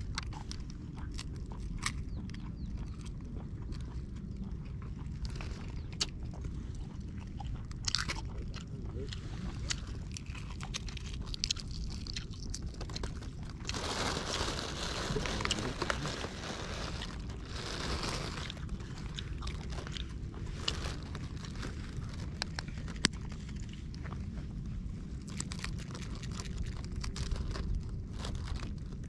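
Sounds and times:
plastic bag crinkling: 10.6 - 23.7, 25.2 - 29.0.

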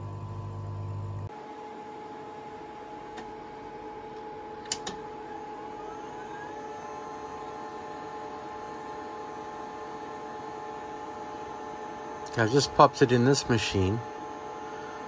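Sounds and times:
machines humming: 0.0 - 15.0
tape deck whine and whir: 0.0 - 15.0
tape deck mechanical clicks: 4.6 - 5.1.

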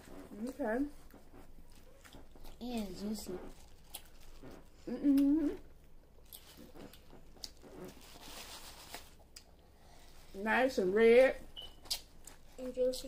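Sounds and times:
mouth sounds of eating: 1.7 - 8.0
person humming with enjoyment: 4.8 - 5.6
plastic bag crinkle: 6.2 - 9.2.

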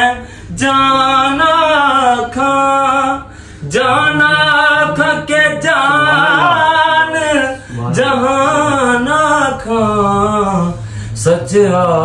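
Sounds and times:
man singing unaccompanied: 0.0 - 12.0
short breath: 0.2 - 0.5, 3.2 - 3.7, 10.8 - 11.2.

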